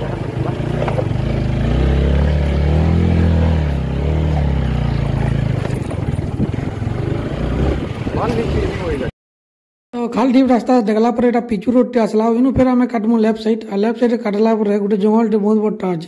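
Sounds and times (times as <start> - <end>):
motorcycle engine running: 0.0 - 9.1.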